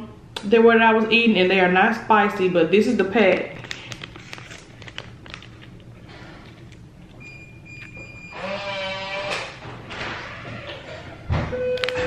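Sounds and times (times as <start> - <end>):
plastic packet crinkling: 3.2 - 7.2.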